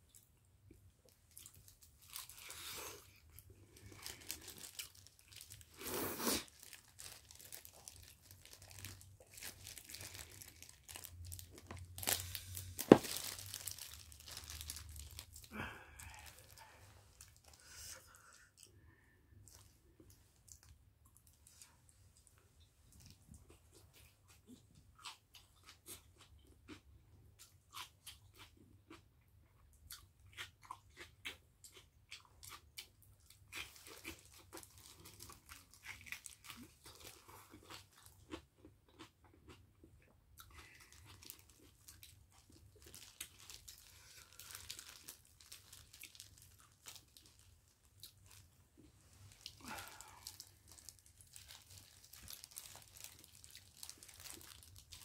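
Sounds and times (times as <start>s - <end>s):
crisp wet chewing crunches: 1.1s - 16.6s, 29.9s - 55.0s.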